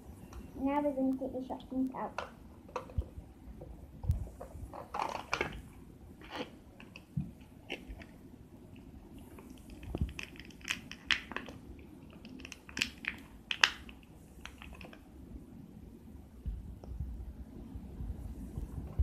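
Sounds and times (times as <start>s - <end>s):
plastic packaging crinkling: 4.7s - 8.1s, 9.3s - 15.0s.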